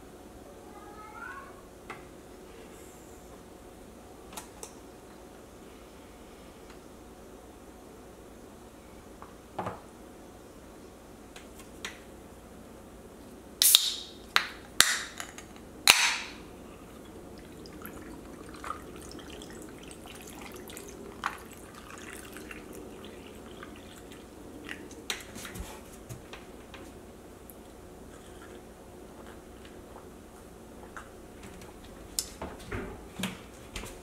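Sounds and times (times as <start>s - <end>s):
drink pouring over ice: 17.3s - 24.9s.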